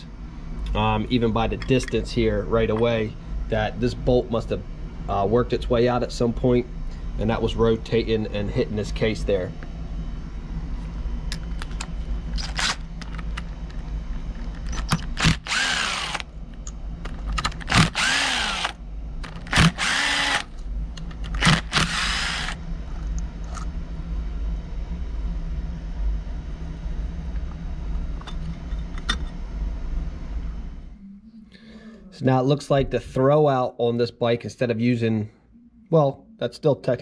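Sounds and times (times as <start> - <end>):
steady low hum: 0.0 - 37.0
power driver motor whirring: 12.4 - 13.3, 14.6 - 16.3, 17.4 - 20.6, 21.2 - 22.6.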